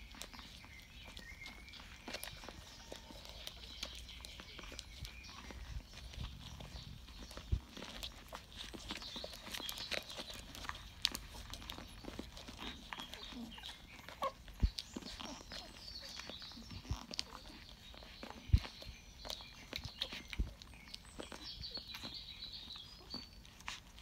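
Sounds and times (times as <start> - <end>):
puppies suckling wet smacking: 0.0 - 24.0
puppy squeaks and grunts: 0.0 - 24.0.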